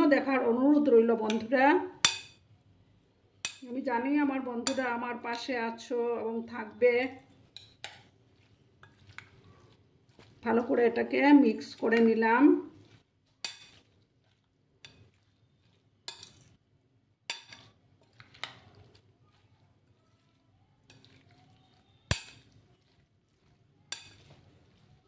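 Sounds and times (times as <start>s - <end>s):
spoon stirring thick batter: 0.0s - 2.5s, 3.4s - 25.0s
spoon clinking against bowl: 20.9s - 22.9s, 23.9s - 24.5s.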